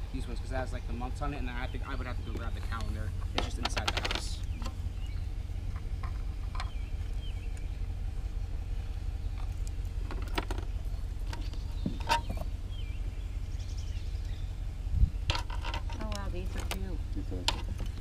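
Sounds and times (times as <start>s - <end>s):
low rumble: 0.0s - 18.0s
light clicks and knocks: 2.3s - 4.8s
faint bird chirps: 4.4s - 9.6s, 10.6s - 15.3s.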